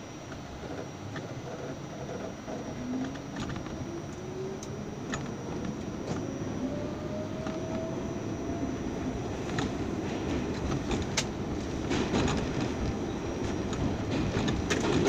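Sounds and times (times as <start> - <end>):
subway train motor whine: 0.0 - 15.0
train running noise: 0.0 - 15.0.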